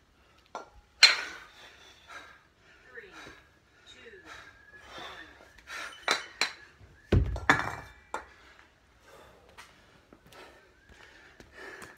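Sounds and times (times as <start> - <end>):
metallic clink of kettlebells: 0.4 - 1.5, 5.8 - 6.6, 7.2 - 8.4
kettlebells thudding on floor: 7.1 - 8.3.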